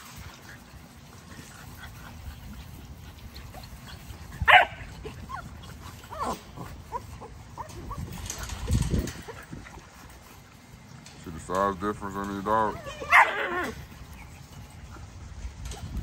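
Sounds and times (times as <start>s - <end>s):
puppies yipping and whining: 0.1s - 11.2s, 12.1s - 16.0s
puppy yelping loudly: 4.4s - 5.4s, 12.8s - 14.3s.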